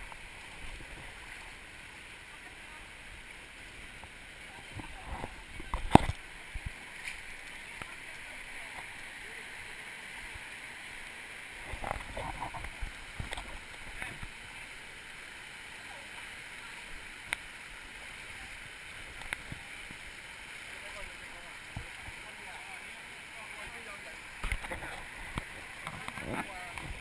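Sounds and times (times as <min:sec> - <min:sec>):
rushing river water: 0:00.0 - 0:27.0.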